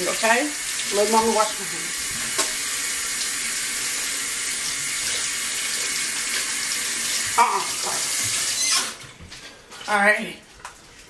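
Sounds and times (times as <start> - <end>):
hands washed under water: 0.0 - 8.6.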